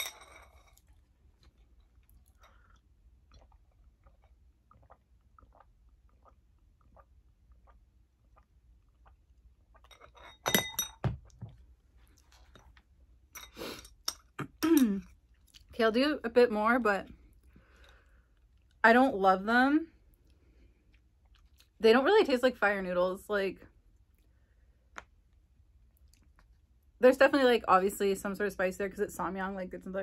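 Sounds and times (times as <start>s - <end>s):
chewing noodles: 0.7s - 10.1s, 20.2s - 21.8s
drinking glass clinking: 10.0s - 11.2s.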